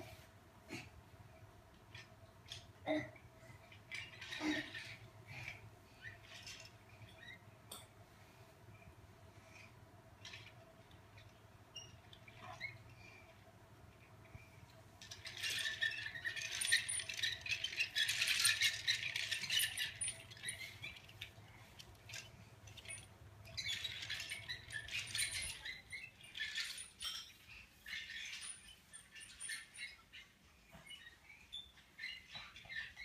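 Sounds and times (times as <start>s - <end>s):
plastic toy train rattling on floor: 1.9s - 7.4s, 15.0s - 33.0s.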